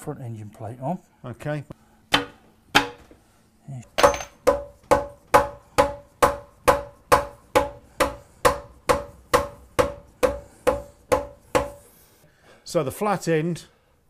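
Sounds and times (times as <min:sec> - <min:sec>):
hammer tapping on metal: 0:04.0 - 0:11.8.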